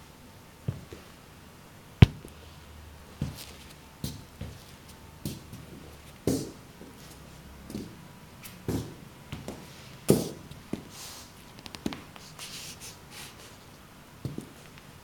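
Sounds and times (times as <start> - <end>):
boot footsteps on tile floor: 2.0 - 2.3.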